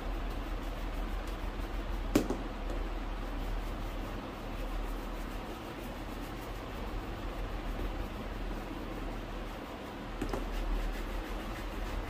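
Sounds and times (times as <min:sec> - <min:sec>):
hand work on a shoe: 0:00.0 - 0:12.0
low background hum: 0:00.0 - 0:12.0
sharp tap: 0:02.1 - 0:02.8.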